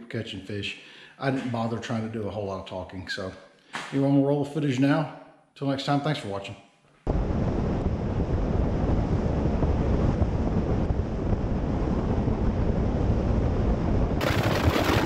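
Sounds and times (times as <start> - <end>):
wind buffeting microphone: 7.1 - 15.0.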